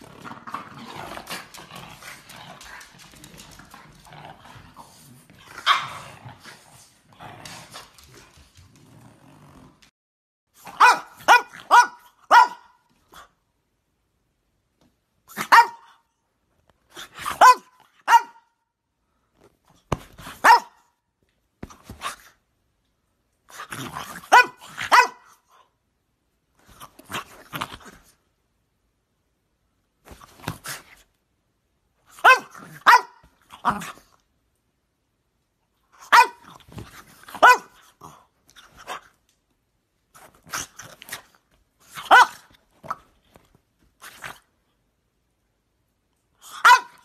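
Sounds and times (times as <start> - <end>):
dogs scuffling: 0.1 - 5.6
dog barking: 5.6 - 6.0, 10.6 - 12.9, 15.4 - 16.0, 17.3 - 18.6, 20.4 - 20.9, 24.3 - 25.4, 32.2 - 33.3, 36.0 - 36.4, 37.4 - 37.8, 42.1 - 42.4, 46.6 - 47.0.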